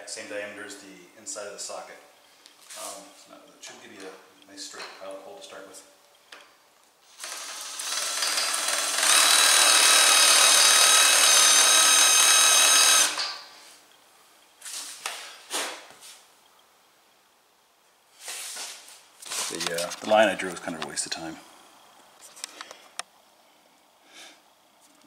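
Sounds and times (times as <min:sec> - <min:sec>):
electric drill whining into concrete: 0:07.1 - 0:13.5.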